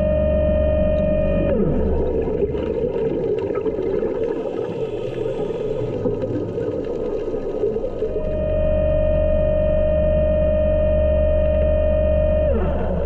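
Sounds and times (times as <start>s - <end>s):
steady hum: 0.0s - 2.7s, 7.8s - 13.0s
underwater regulator bubbles: 0.1s - 13.0s.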